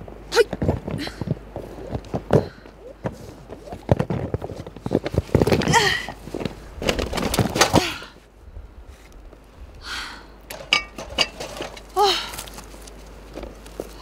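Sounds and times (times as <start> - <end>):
rustling fabric and plastic: 3.1 - 7.8, 11.1 - 14.0.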